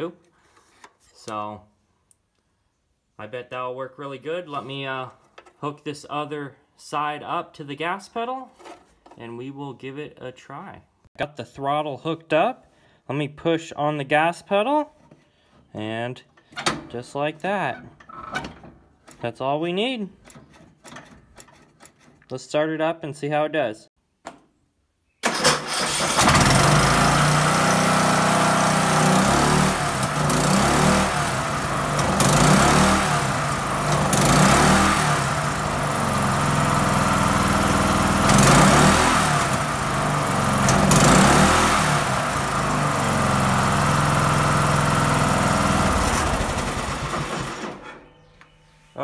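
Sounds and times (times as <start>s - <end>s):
riding mower engine revving: 25.2s - 48.0s.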